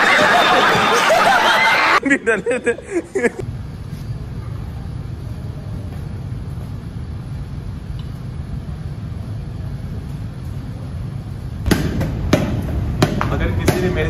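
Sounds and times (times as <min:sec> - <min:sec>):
basketball bouncing on tiled floor: 0:11.7 - 0:14.0.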